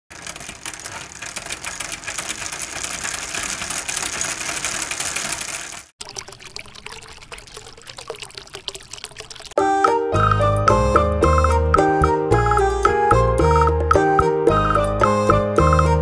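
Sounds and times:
water splashing in a fish tank: 2.2s - 9.6s
faint water sound: 5.6s - 9.6s.

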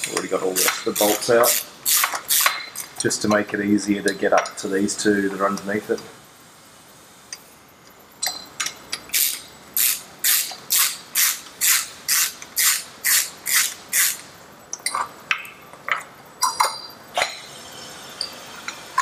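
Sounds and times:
socket ratchet clicking: 0.6s - 3.0s, 8.6s - 14.3s
light metal clinks: 8.2s - 9.0s.

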